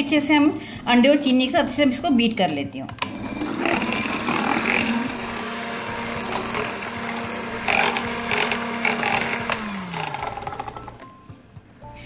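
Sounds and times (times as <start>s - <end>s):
electric hand mixer whisking: 3.0s - 11.0s
beaters clattering in bowl: 6.2s - 11.1s.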